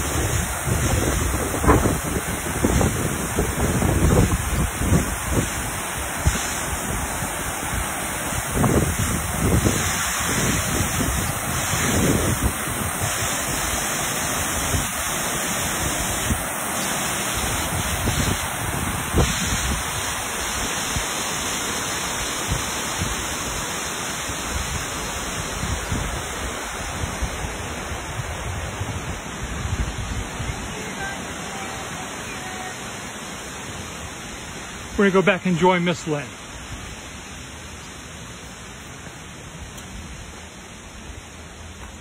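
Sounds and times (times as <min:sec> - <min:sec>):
wind buffeting microphone: 0:00.0 - 0:07.1, 0:08.4 - 0:13.2
water rushing down spillway: 0:00.0 - 0:42.0.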